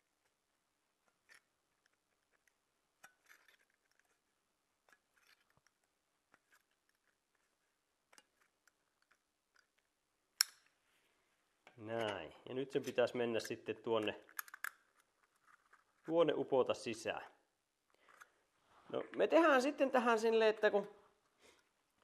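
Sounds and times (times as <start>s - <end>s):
thin metal crinkling and clicking: 1.0s - 10.8s, 11.6s - 16.1s.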